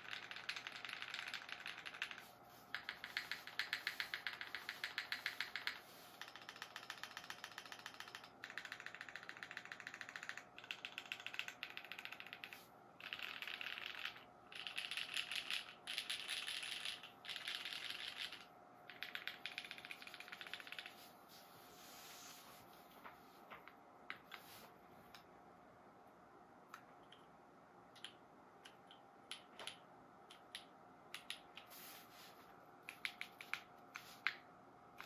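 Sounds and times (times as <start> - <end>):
mechanical keyboard typing: 0.0 - 21.1, 28.0 - 31.6, 32.8 - 34.4.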